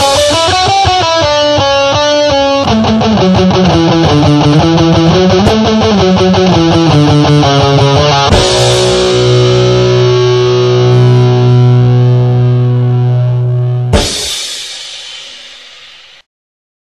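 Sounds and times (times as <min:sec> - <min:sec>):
distorted electric guitar: 0:00.0 - 0:16.2
loud final hit: 0:08.3 - 0:12.4, 0:13.9 - 0:16.2.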